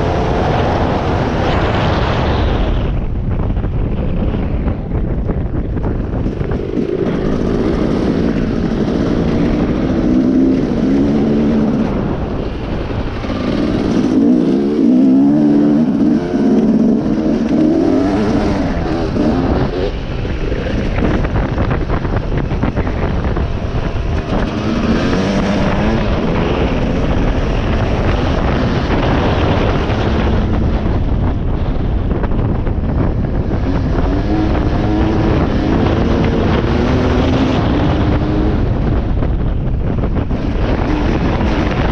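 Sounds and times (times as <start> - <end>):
wind buffeting microphone: 0.0 - 41.9
dirt bike engine revving: 6.1 - 31.2, 32.9 - 39.0.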